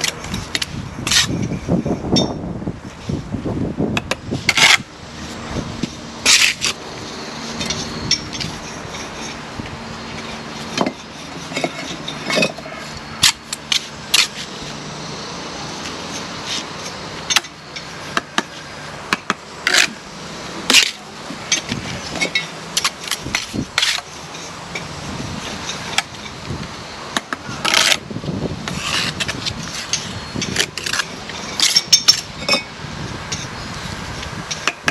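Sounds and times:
steady background hum: 0.0 - 34.9
trowel scraping mortar: 4.0 - 6.8, 7.4 - 14.8, 20.6 - 24.6, 28.6 - 32.2.

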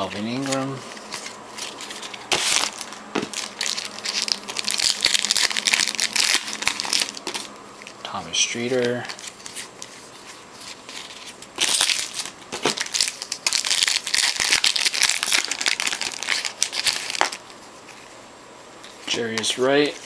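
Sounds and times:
foil wrapper tearing and crinkling: 0.0 - 7.5, 10.7 - 17.4.

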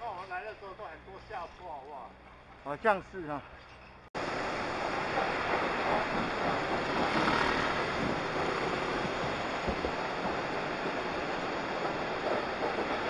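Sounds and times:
wind buffeting microphone: 4.3 - 13.0.

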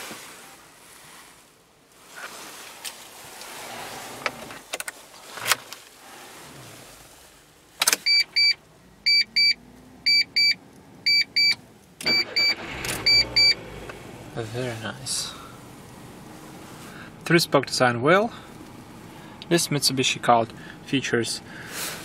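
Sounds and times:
sharp clicks in car cabin: 7.8 - 8.6
dashboard warning chime beeps: 8.0 - 13.6
starter cranking engine: 12.0 - 14.2.

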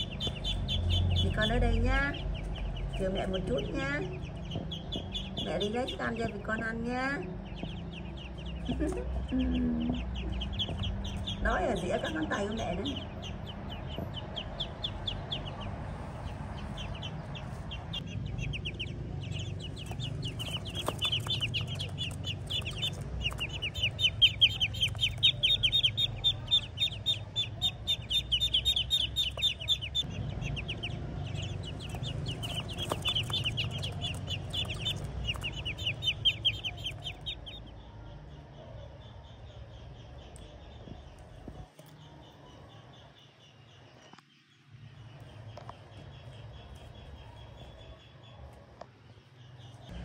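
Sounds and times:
ducklings peeping: 0.0 - 37.8.

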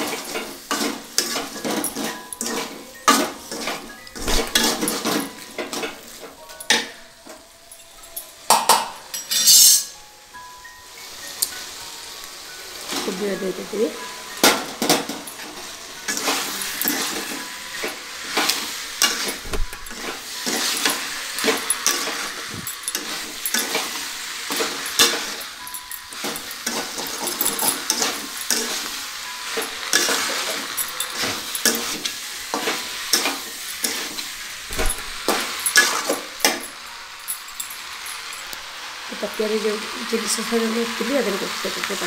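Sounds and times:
ladle scraping and clinking pan: 0.0 - 7.0, 9.1 - 10.0, 14.0 - 36.8
frying sizzle: 0.0 - 42.0.

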